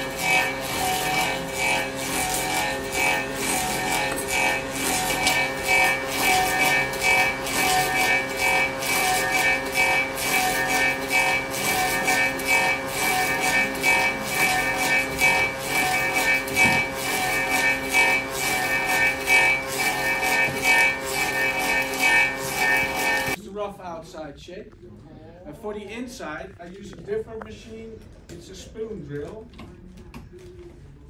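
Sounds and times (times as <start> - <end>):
cutter rasping wood: 0.0 - 23.4
lathe motor whine: 0.0 - 23.4.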